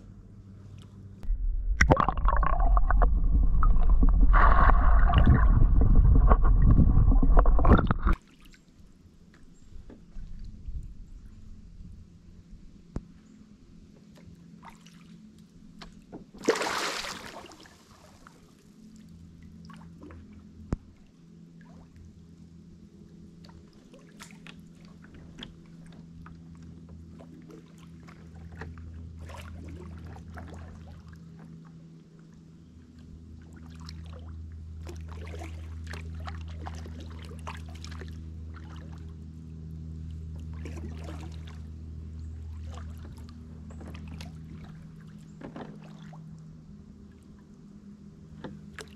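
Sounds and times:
paddle splashing water: 0:01.8 - 0:08.6, 0:16.4 - 0:18.5, 0:23.4 - 0:31.6, 0:33.4 - 0:46.3.

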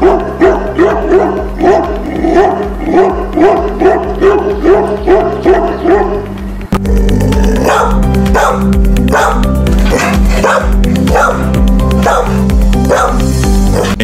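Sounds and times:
dog barking deeply: 0:00.0 - 0:06.4, 0:07.4 - 0:14.0
background music: 0:00.0 - 0:14.0.

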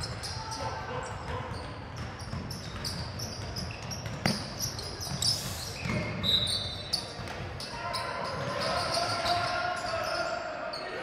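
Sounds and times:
background noise: 0:00.0 - 0:11.0
shoe squeaks: 0:00.0 - 0:11.0
basketball bouncing on hardwood: 0:01.2 - 0:05.2.

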